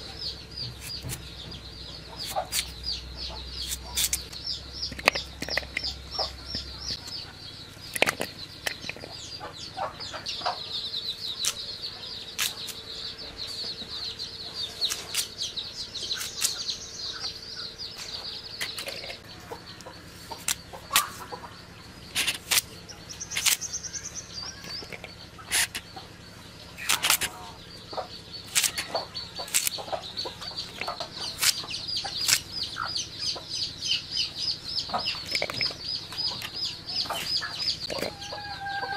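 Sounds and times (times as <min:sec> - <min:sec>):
birds chirping: 0:00.0 - 0:38.9
blade slicing vegetables clicks: 0:00.7 - 0:01.3, 0:02.2 - 0:02.9, 0:03.6 - 0:07.2, 0:11.4 - 0:11.6, 0:12.3 - 0:12.8, 0:14.8 - 0:15.4, 0:16.0 - 0:16.8, 0:18.6 - 0:19.2, 0:20.3 - 0:21.3, 0:22.1 - 0:23.7, 0:24.6 - 0:25.9, 0:26.8 - 0:27.4, 0:28.5 - 0:32.9.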